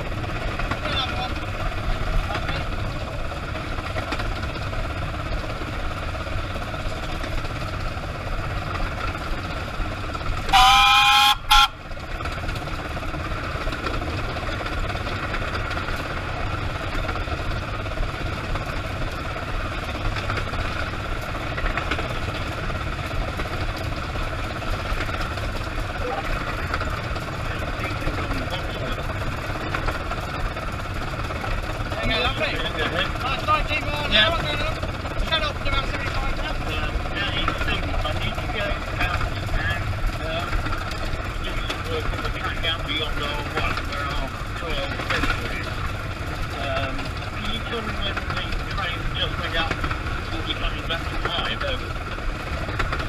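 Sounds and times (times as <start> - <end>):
steam locomotive running: 0.0 - 53.0
steam whistle: 10.5 - 11.8.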